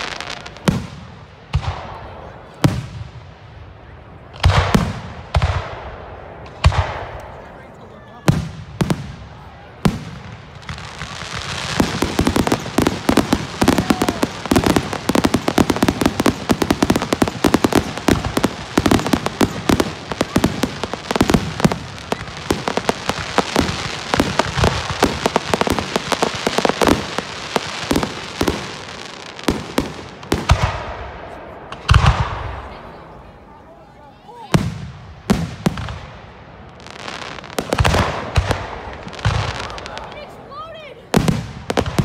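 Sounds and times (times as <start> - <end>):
firework crackle: 0.0 - 1.8, 9.8 - 32.6, 34.5 - 40.4.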